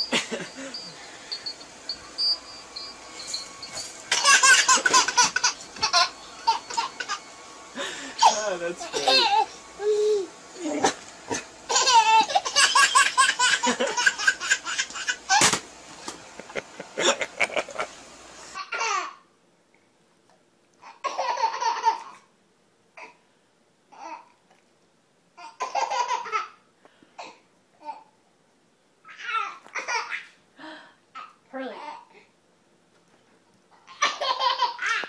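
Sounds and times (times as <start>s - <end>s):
baby laughing: 4.1s - 7.2s, 8.2s - 15.6s, 17.0s - 17.9s, 20.8s - 22.2s, 25.4s - 26.6s, 29.1s - 30.4s, 33.8s - 35.0s.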